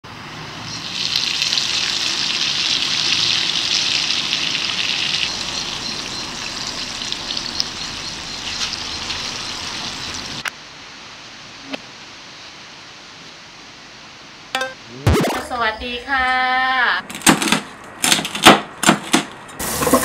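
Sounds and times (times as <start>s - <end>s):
hot oil sizzling: 0.0s - 11.0s, 19.6s - 20.0s
oil popping and crackling: 0.7s - 10.4s.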